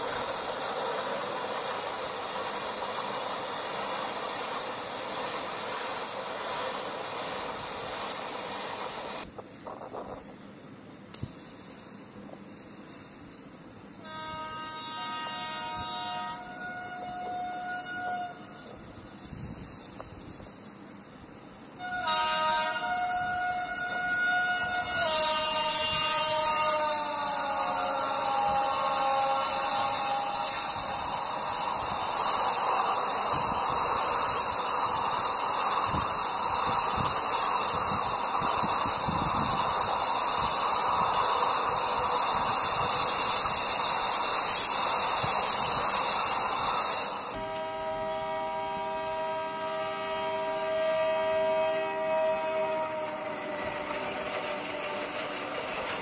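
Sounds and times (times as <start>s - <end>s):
train passing at speed: 0.0s - 56.0s
locomotive horn blast: 14.0s - 18.8s, 21.8s - 45.6s, 47.2s - 55.7s.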